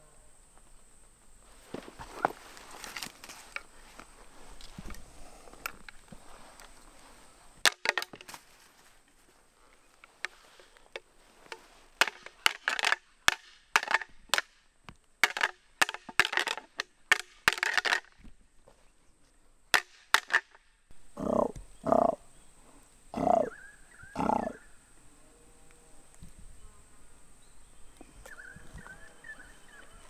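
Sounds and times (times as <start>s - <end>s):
antlers clashing together: 11.5s - 14.5s, 15.2s - 18.1s.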